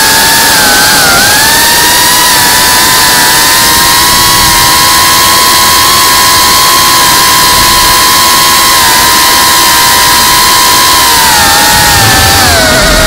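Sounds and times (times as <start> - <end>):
drone motors high whine: 0.0 - 13.0
wind rushing over microphone: 10.9 - 13.0.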